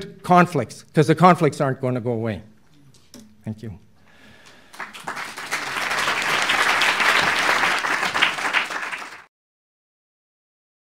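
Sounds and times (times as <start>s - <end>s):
audience applauding: 4.5s - 9.3s.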